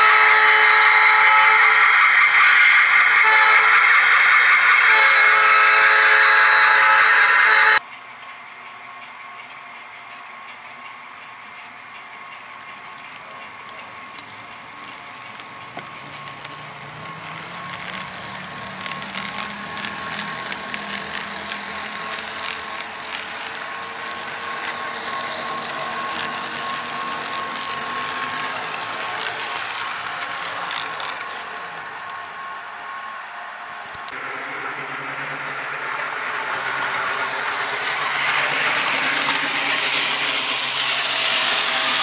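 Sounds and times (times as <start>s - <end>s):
model train gears whirring: 0.0s - 42.0s
wheels clicking on track: 7.8s - 32.4s, 33.8s - 42.0s.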